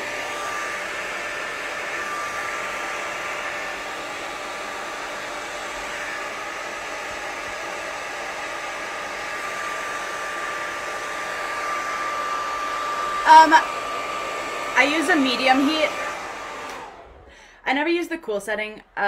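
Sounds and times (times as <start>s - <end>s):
hair dryer running: 0.0s - 19.0s
person speaking: 13.2s - 13.8s, 14.6s - 16.2s, 17.6s - 19.0s.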